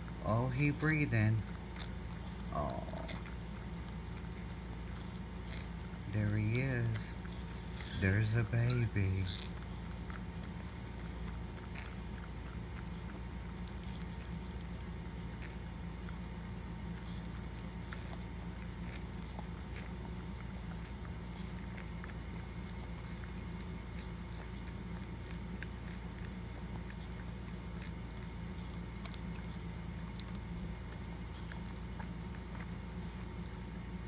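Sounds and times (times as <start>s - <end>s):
dog licking puppy: 0.0s - 34.0s
steady low hum: 0.0s - 34.0s.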